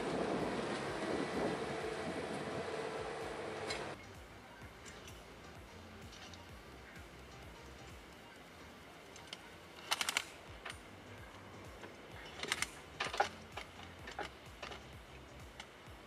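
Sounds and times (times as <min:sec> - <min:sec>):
rapid clicking and clatter: 0:09.2 - 0:10.9.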